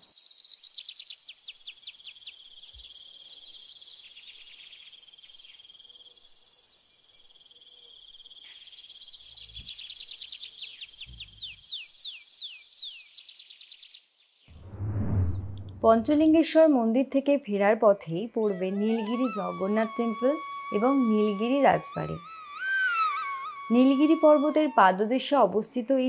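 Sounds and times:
animal falling chirps: 18.5 - 24.9
steady high hiss: 18.8 - 24.8.

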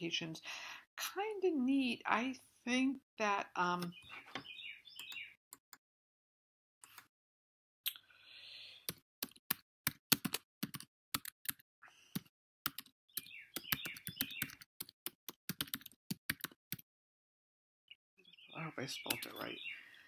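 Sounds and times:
computer keyboard typing: 8.9 - 16.8.

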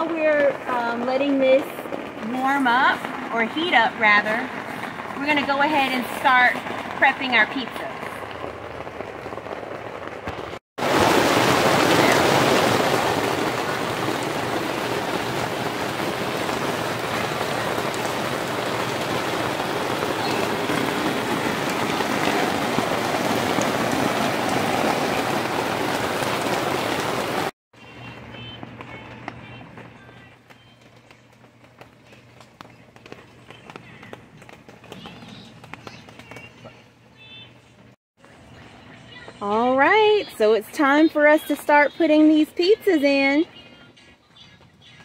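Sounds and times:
heavy rain falling: 0.0 - 27.5.

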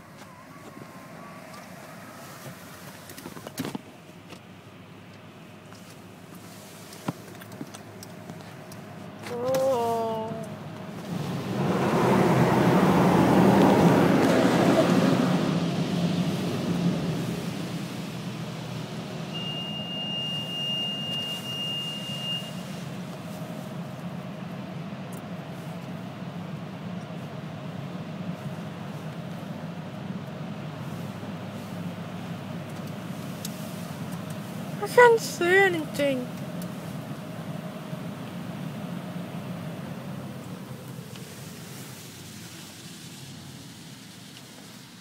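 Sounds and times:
car rolling slowly from inside: 0.0 - 45.0
steady high beep: 19.4 - 22.6.

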